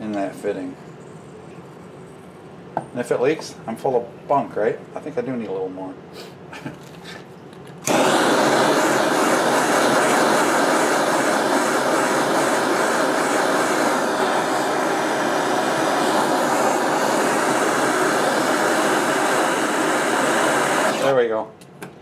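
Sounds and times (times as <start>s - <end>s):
gas torch flame hissing: 7.0s - 21.4s.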